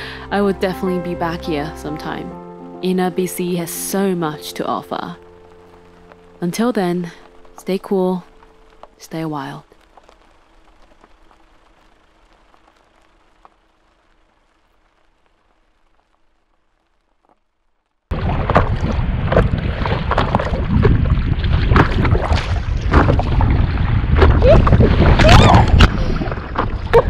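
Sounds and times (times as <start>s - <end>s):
faint steady hum: 0.0s - 17.9s
water splashing around paddle board: 18.1s - 27.0s
wind rushing over microphone: 18.1s - 27.0s.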